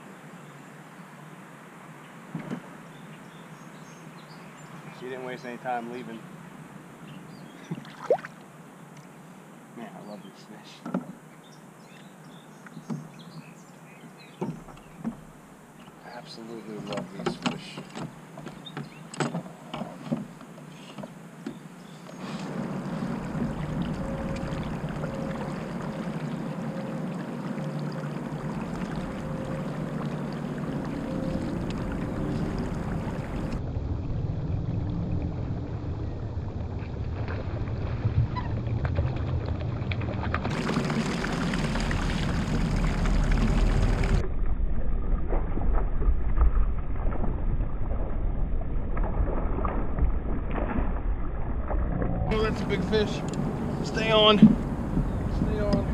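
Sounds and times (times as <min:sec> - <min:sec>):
water rushing along hull: 0:14.4 - 0:55.9
wind noise: 0:22.3 - 0:55.9
low rumble: 0:22.4 - 0:55.9.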